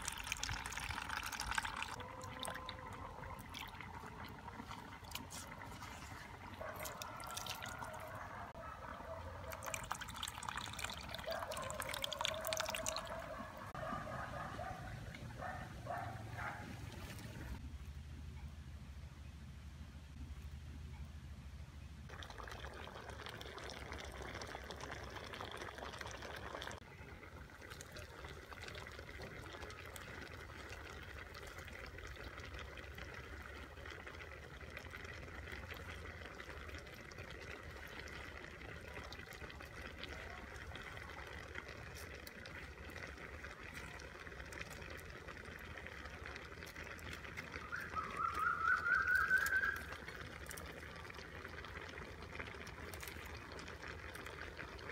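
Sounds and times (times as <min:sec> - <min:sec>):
curry bubbling in a wok: 0:00.0 - 0:08.2, 0:22.1 - 0:54.9.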